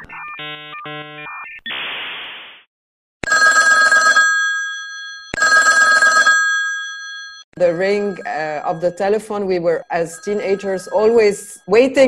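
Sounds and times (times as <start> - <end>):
old telephone bell ringing: 3.3 - 12.0
dial-up modem tones: 10.0 - 11.6.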